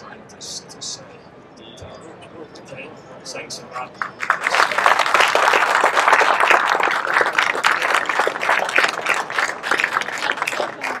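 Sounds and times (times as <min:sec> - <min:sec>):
audience applauding: 0:04.0 - 0:11.0.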